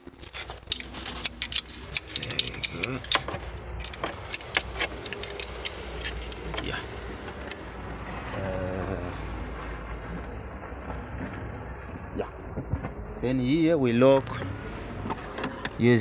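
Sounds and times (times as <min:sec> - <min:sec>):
steady low rumble: 0:00.0 - 0:15.4
spanner clicking on bolt: 0:00.2 - 0:06.8.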